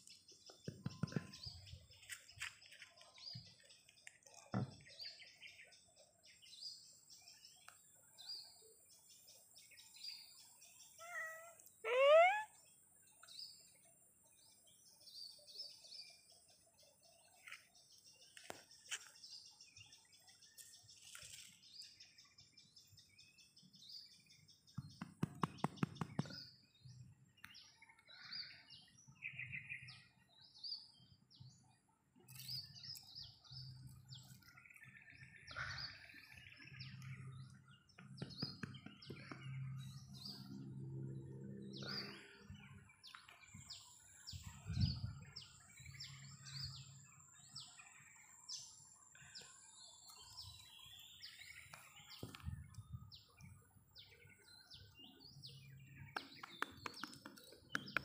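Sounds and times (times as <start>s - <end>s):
birds chirping: 0.0s - 58.0s
rapid loud taps: 24.8s - 26.4s.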